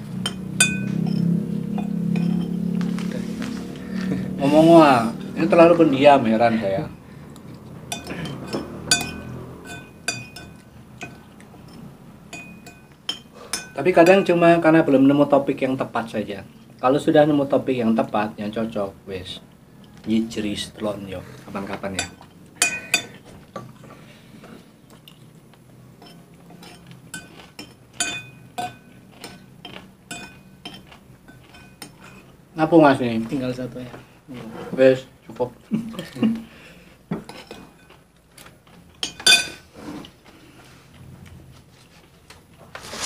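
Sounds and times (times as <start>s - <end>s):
metal spoon clinking on dish: 0.2s - 2.8s, 7.9s - 14.3s, 22.0s - 23.2s, 26.0s - 32.3s, 39.0s - 39.6s.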